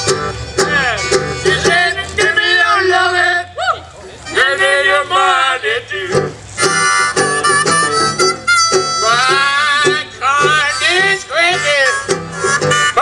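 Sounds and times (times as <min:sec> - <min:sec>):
banjo plucking: 0:00.0 - 0:03.2, 0:06.0 - 0:13.0
small brass horn melody: 0:06.6 - 0:09.4, 0:10.5 - 0:13.0.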